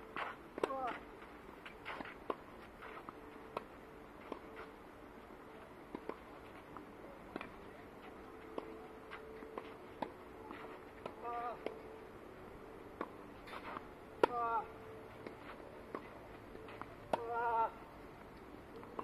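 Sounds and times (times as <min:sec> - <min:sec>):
faint steady hum: 0:00.0 - 0:19.0
tennis ball hits: 0:16.8 - 0:17.7.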